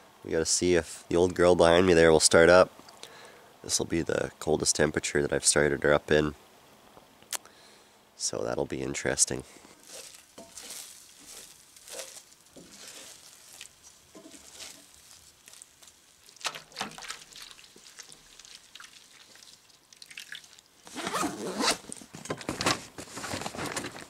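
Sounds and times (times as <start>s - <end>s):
spatula scraping skillet: 9.5s - 19.6s
rustling and rasping: 9.5s - 19.8s, 20.8s - 24.0s.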